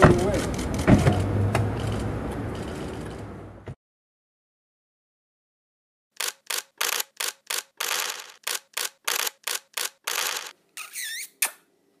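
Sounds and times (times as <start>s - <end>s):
short noisy bursts: 6.2s - 10.5s.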